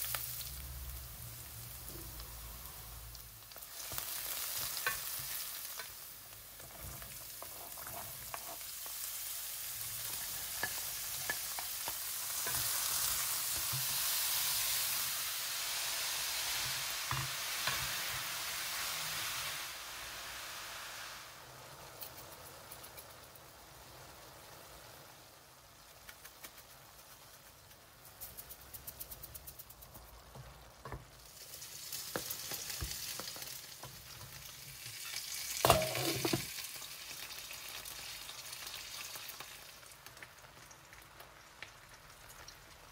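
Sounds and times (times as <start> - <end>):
vegetables sizzling in oil: 0.0 - 42.9
wooden spoon stirring in pot: 3.8 - 9.0.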